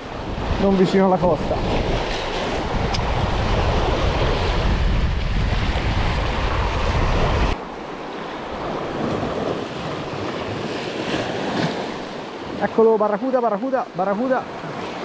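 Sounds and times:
wind buffeting microphone: 0.0s - 7.8s
sea surf washing around rock: 0.0s - 15.0s.

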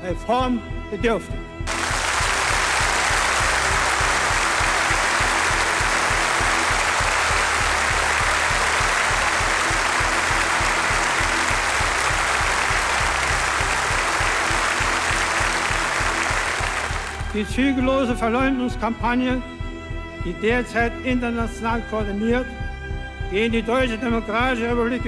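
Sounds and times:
background music with low pulse: 0.0s - 25.0s
audience applauding: 1.7s - 17.5s.

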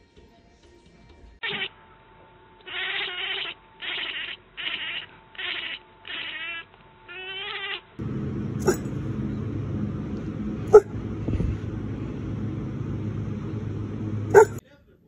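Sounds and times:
cat meowing: 2.7s - 7.9s
steady low rumble: 8.0s - 14.6s
small dog barking: 8.5s - 9.1s, 10.6s - 11.5s, 14.2s - 14.6s.

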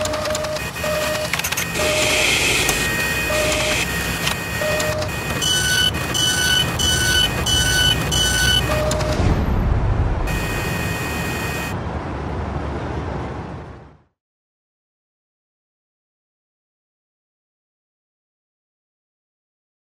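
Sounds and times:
high electronic beeps: 0.0s - 9.3s, 10.3s - 11.8s
mechanical whirring and hiss: 0.0s - 9.3s.

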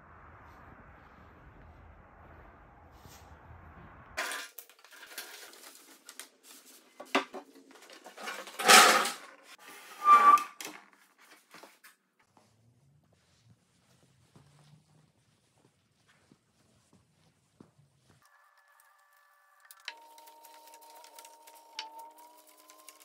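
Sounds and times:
short squeak: 9.8s - 10.7s.

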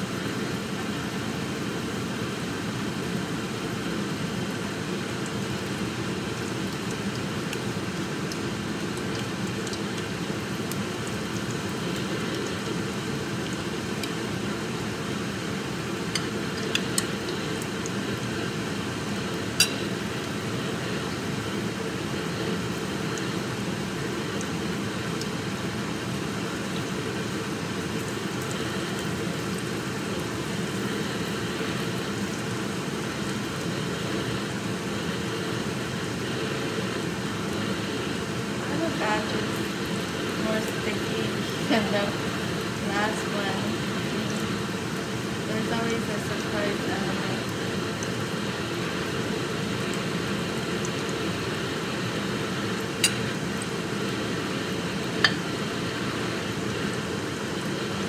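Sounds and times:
low hum and hiss: 0.0s - 58.0s.

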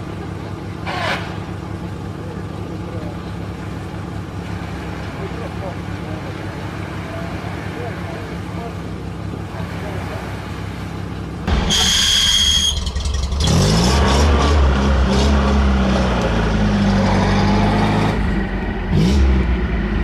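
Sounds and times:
off-road engine revving: 0.0s - 20.0s
brief high-pitched whine: 11.5s - 13.2s.

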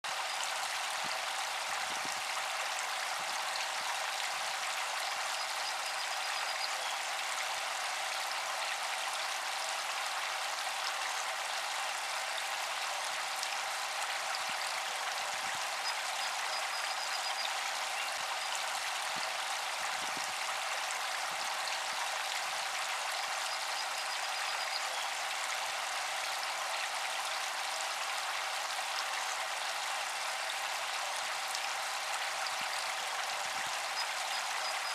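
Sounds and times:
fountain spray splashing on water: 0.1s - 34.9s
faint steady tone: 2.8s - 8.4s, 14.1s - 26.6s, 29.0s - 34.9s.

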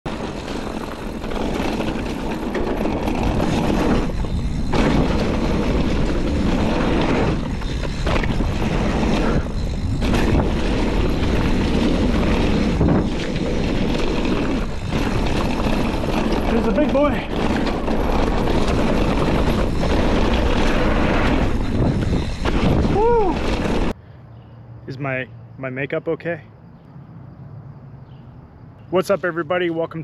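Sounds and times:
bike tyres rumbling over dirt: 0.1s - 24.0s
wind on microphone: 0.1s - 24.0s.

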